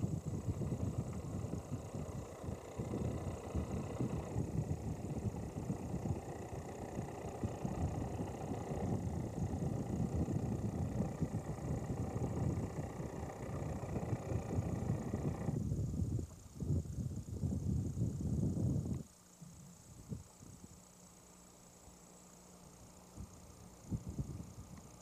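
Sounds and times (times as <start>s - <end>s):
wind buffeting microphone: 0.0s - 20.7s, 23.1s - 25.0s.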